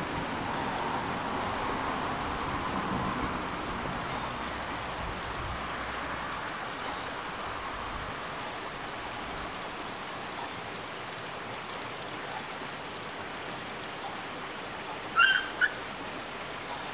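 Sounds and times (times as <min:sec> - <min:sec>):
running water rushing: 0:00.0 - 0:16.9
puppy yelping: 0:15.2 - 0:15.8.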